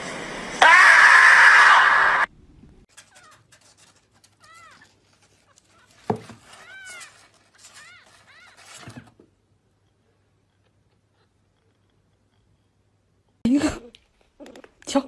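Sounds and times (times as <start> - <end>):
small animal high calls: 4.4 - 9.0.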